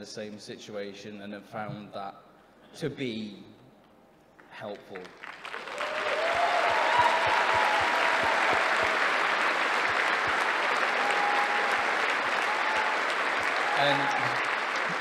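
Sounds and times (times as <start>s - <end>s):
large audience applauding: 4.9s - 15.0s.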